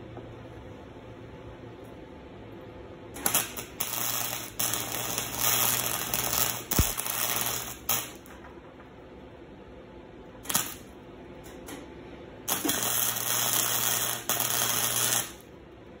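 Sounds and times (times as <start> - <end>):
welder arc crackling: 3.2 - 8.4, 10.4 - 11.8, 12.5 - 15.5.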